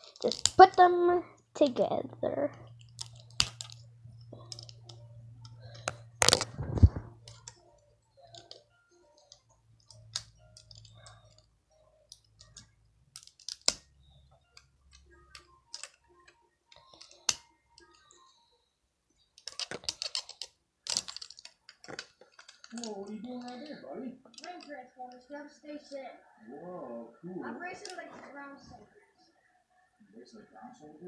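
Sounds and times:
plastic toy parts clicking: 0:00.0 - 0:00.9, 0:02.7 - 0:11.5, 0:12.1 - 0:18.3, 0:19.3 - 0:25.2, 0:27.7 - 0:28.1
plastic clatter: 0:19.4 - 0:24.7.

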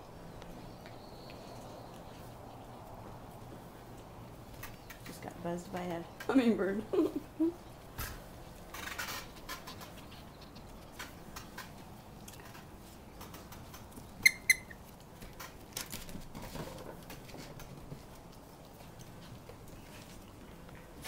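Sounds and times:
claws pattering on deck boards: 0:00.3 - 0:06.3, 0:07.8 - 0:21.0
puppy squeaks: 0:14.2 - 0:14.8.

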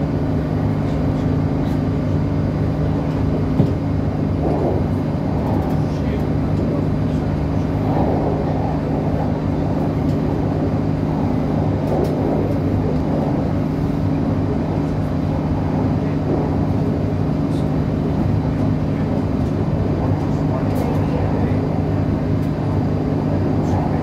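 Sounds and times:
diesel engine drone: 0:00.0 - 0:24.0
train wheels rumbling on track: 0:00.0 - 0:24.0.

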